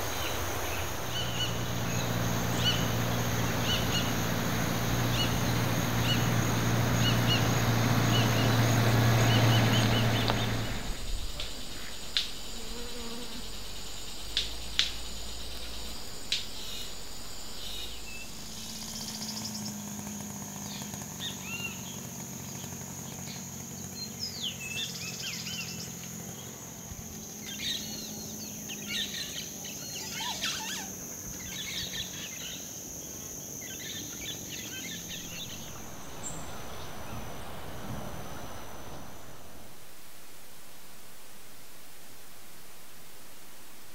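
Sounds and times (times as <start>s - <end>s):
birds whistling: 0.0s - 12.5s, 33.7s - 39.7s
loud low buzz: 0.0s - 21.4s, 34.9s - 43.9s
high insect drone: 0.0s - 43.9s.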